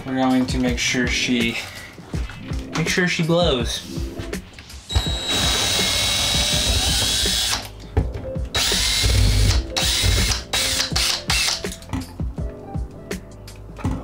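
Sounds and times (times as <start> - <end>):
cordless drill whirring: 4.9 - 7.7, 8.6 - 11.6.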